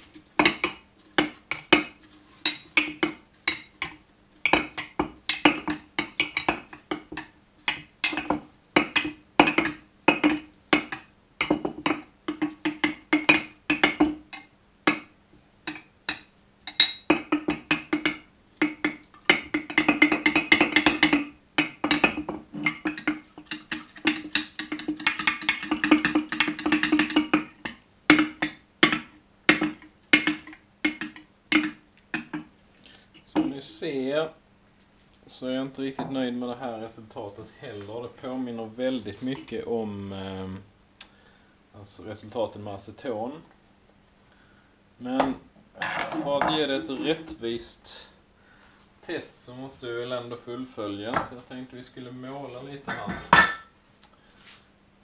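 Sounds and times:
fast rattling stirring: 0.1 - 14.5, 15.7 - 32.5.

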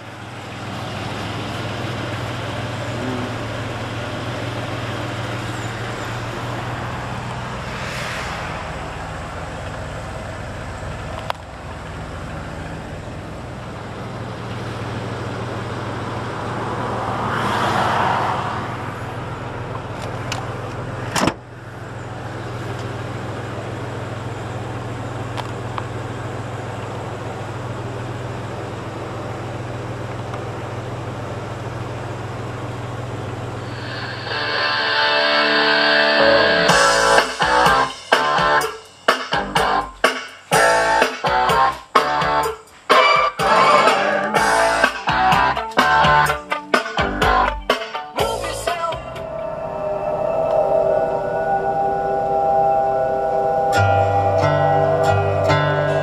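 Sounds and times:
road traffic: 0.0 - 56.0
vehicles passing: 0.0 - 56.0
steady low hum: 49.0 - 56.0.

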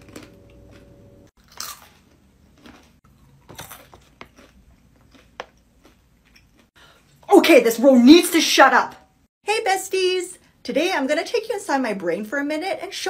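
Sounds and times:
person chewing crunchy food: 0.0 - 7.2.

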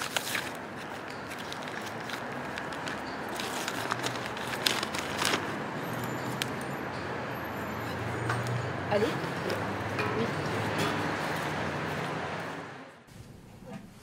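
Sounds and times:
paper being handled: 0.0 - 5.6
handbag rummaging clicks and rustles: 0.0 - 6.4
city background noise: 0.0 - 14.0.

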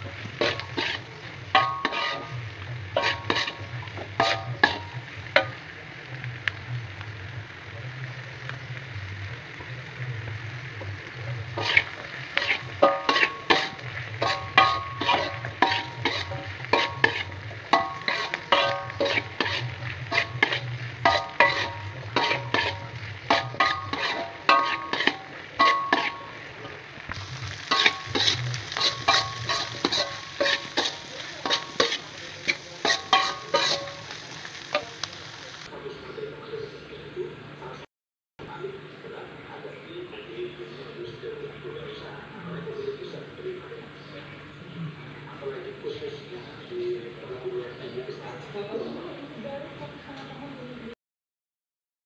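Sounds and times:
metal spatula scraping a wok: 0.0 - 5.7, 11.4 - 35.7
steady sizzle: 0.0 - 35.8.

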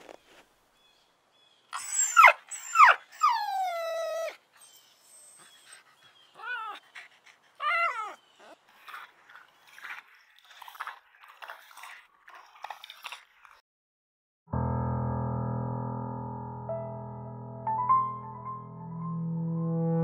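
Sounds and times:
dog whining and yelping: 1.7 - 11.9
dog whimpering: 1.8 - 9.1.

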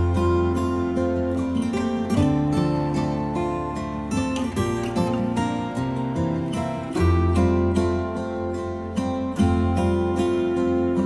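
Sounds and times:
plucked acoustic guitar: 0.0 - 11.0.

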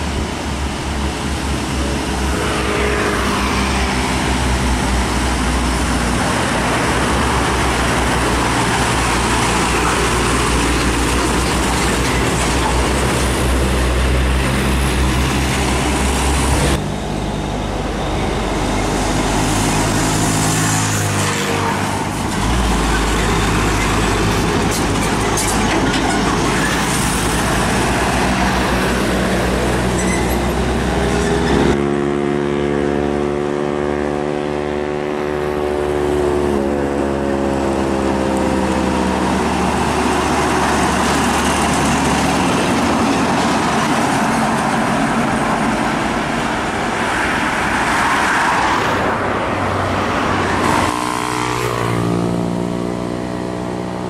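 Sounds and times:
heavy traffic on highway: 0.0 - 54.0
tyre and road noise: 0.0 - 54.0
vehicle passing by: 1.7 - 11.2, 31.3 - 54.0.

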